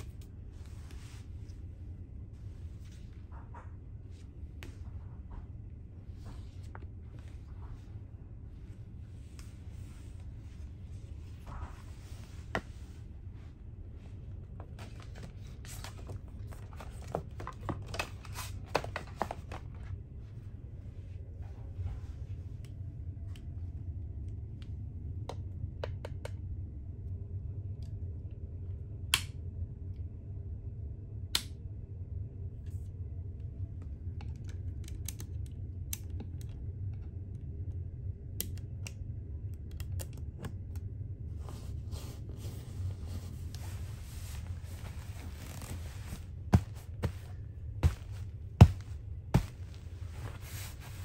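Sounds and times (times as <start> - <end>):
bed linen rustling: 0.0 - 3.3, 6.0 - 17.4, 41.4 - 51.0
steady low hum: 0.0 - 51.0.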